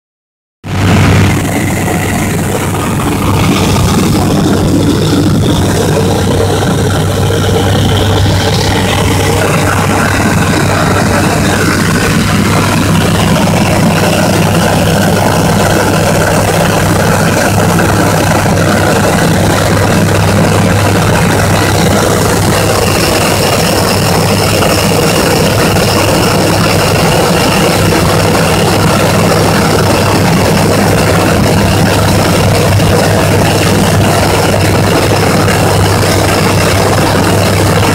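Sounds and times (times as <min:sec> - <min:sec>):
aircraft engine and propeller hum: 0:00.7 - 0:37.9
airflow noise: 0:00.7 - 0:37.9.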